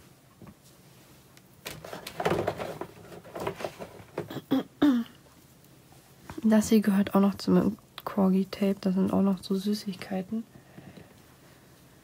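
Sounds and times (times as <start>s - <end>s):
tape rolls clacking: 1.6s - 4.4s
tape rolls rustling: 1.6s - 4.4s.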